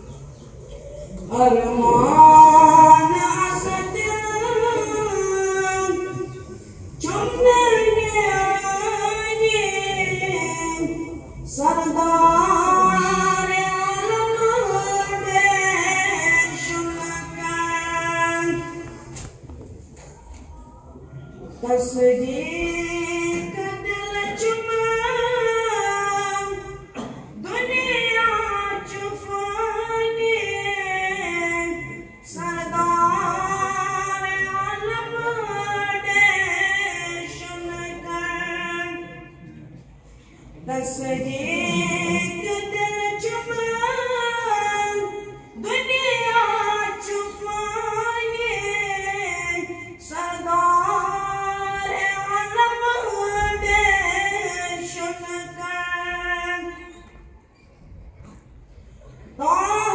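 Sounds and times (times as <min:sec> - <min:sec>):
boy singing unaccompanied: 0:01.3 - 0:06.4, 0:07.0 - 0:19.0, 0:27.4 - 0:39.3, 0:40.7 - 0:57.0.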